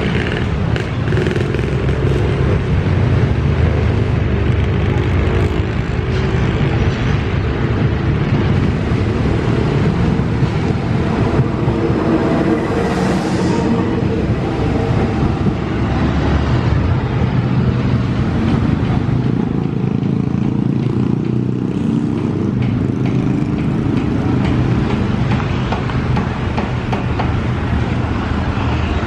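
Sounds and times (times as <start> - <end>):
diesel locomotive engine droning: 0.0 - 29.0.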